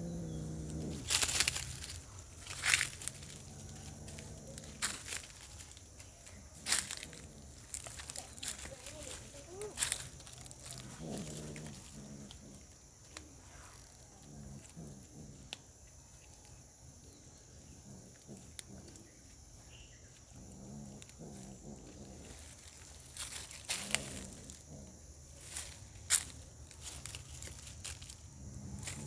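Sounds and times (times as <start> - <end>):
cat growling low: 0.0 - 5.5, 6.6 - 12.8, 13.4 - 15.6, 17.6 - 19.2, 20.3 - 25.6, 28.2 - 29.0.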